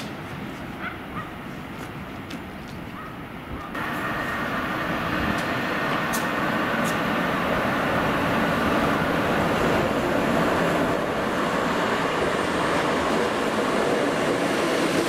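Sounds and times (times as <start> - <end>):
wheels clicking and squeaking on rails: 0.0 - 15.0
locomotive rumbling on track: 3.6 - 15.0.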